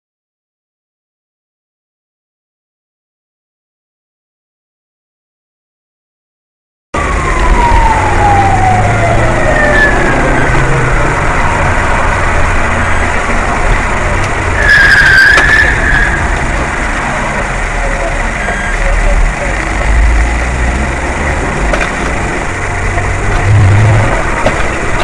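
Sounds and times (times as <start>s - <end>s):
falling whine: 7.0s - 25.0s
traffic noise: 7.0s - 25.0s.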